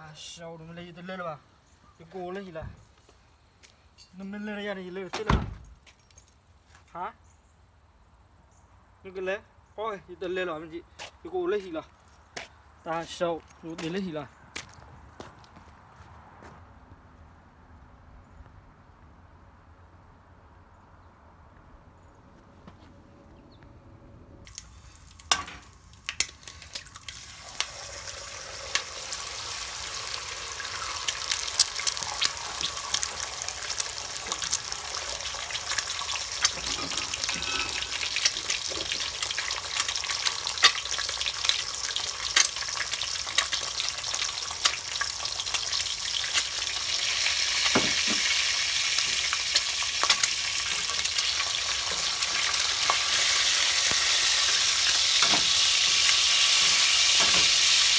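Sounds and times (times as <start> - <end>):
egg sizzling in hot oil: 24.5 - 57.9.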